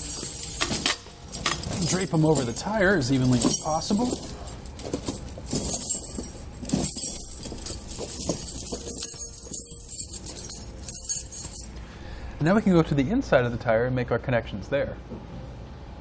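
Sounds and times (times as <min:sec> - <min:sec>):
metal chains jingling: 0:00.0 - 0:11.8.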